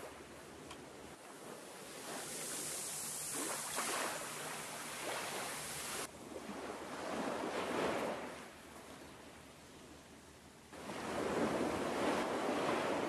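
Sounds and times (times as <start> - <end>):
small waves washing onto shingle: 1.2 - 6.1.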